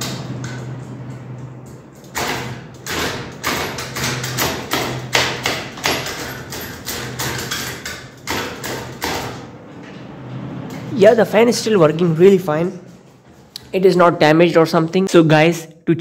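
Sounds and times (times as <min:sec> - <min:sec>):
ceiling fan motor hum: 0:00.0 - 0:16.0
irregular sharp knocks: 0:02.1 - 0:09.5.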